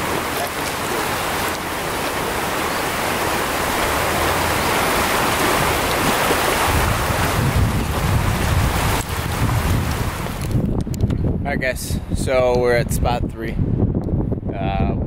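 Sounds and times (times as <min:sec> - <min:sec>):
creek rushing over rocks: 0:00.0 - 0:10.7
wind rumble on microphone: 0:00.0 - 0:15.0.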